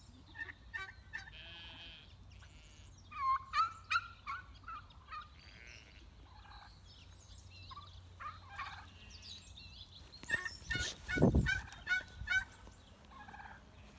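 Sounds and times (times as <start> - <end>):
fowl calling: 10.2 - 13.9.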